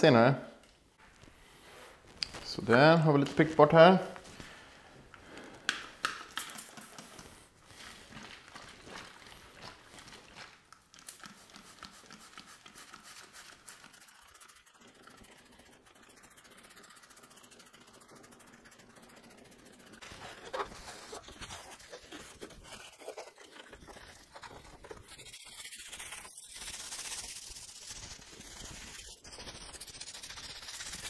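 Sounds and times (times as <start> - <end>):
spray bottle hissing: 25.2 - 31.0.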